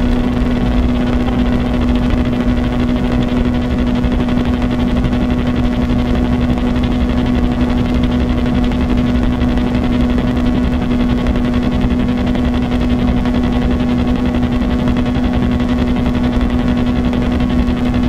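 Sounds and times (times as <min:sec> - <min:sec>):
grainy rumbling noise: 0:00.0 - 0:13.6
loud low drone tone: 0:00.0 - 0:18.0.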